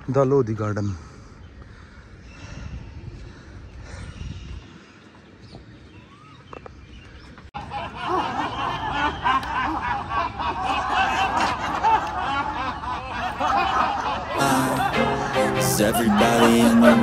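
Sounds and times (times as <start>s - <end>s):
crowd laughing loudly: 7.6s - 17.0s.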